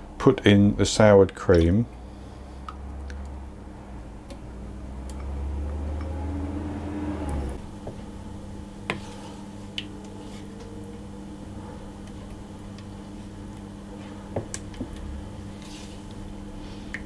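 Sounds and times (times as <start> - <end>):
low hum: 0.0 - 17.0
spatula stirring mixture: 8.7 - 11.1, 11.8 - 17.0.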